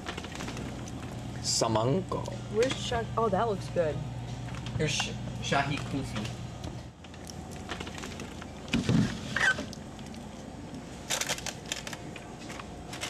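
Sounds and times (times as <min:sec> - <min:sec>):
plastic wrappers crinkling: 0:07.1 - 0:13.0.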